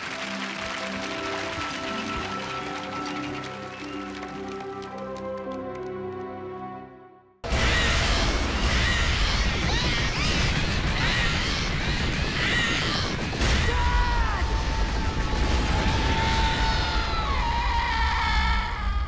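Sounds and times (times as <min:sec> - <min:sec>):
cartoon explosions: 0:07.4 - 0:17.8.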